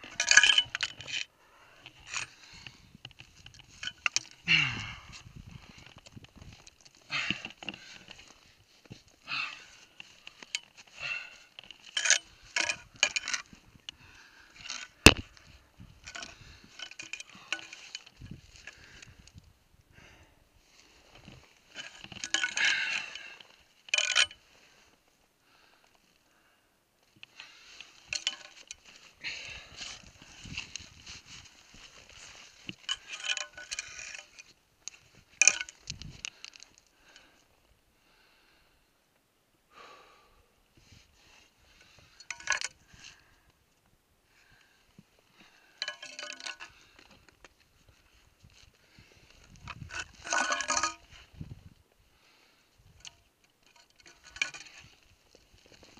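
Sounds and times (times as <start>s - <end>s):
gear scraping against rock: 29.7s - 36.8s, 49.4s - 51.5s, 53.6s - 55.9s.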